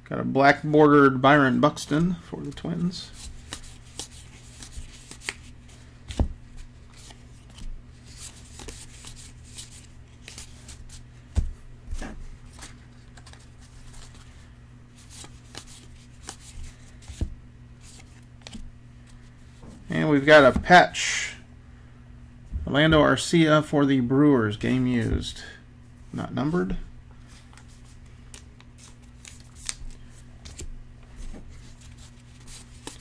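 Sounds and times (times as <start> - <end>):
steady low hum: 0.0 - 33.0
cards flipping and rustling: 1.8 - 19.4, 27.2 - 33.0
low thumps: 22.4 - 23.1.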